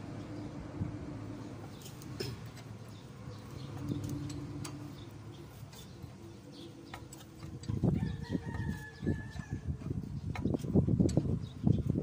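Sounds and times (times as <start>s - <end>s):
rooster crowing: 7.8s - 9.7s.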